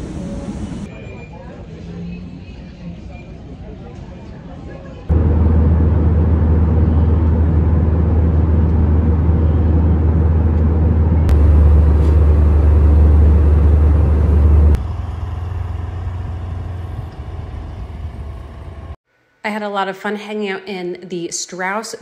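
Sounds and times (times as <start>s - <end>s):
vehicle low rumble: 5.1s - 19.0s.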